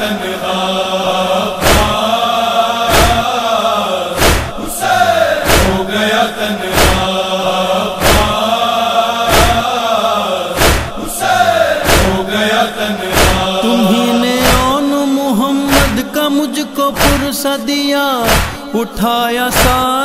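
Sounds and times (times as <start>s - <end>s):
men chanting: 0.0s - 20.0s
chest-beating: 13.2s - 14.9s.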